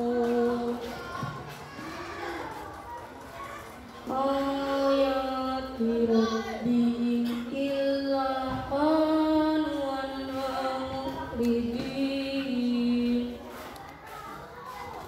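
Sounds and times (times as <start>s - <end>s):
boy reciting melodically: 0.0s - 2.4s, 3.5s - 15.0s.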